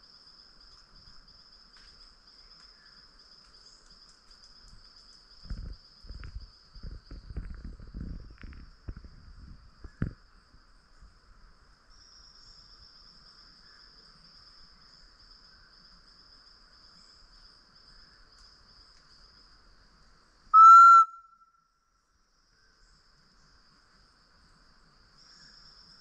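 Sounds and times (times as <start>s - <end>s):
whistled bird call note: 20.6s - 21.6s.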